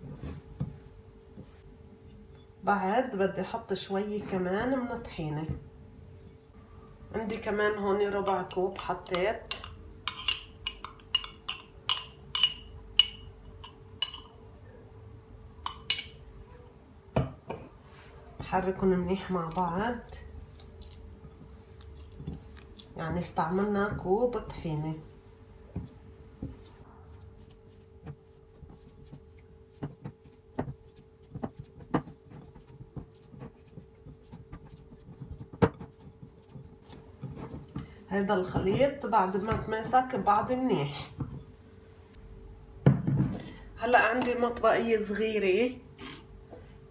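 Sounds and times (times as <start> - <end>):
faint steady hum: 0.0 - 46.9
spoon clinking against glass: 9.6 - 14.4.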